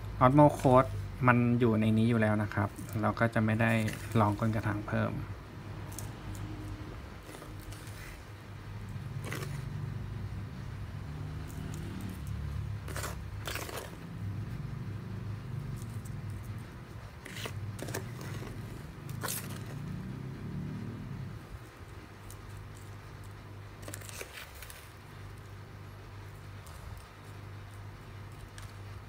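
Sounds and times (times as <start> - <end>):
scoop crunching through gritty soil: 0.2 - 1.3, 2.0 - 5.2, 12.8 - 14.0
plastic scoop scraping bowl: 2.1 - 5.0, 9.2 - 9.8, 11.4 - 14.0, 17.2 - 19.8.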